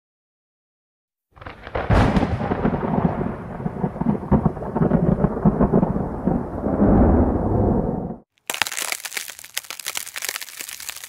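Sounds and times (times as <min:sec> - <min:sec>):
crackling low rumble: 0:02.4 - 0:08.2.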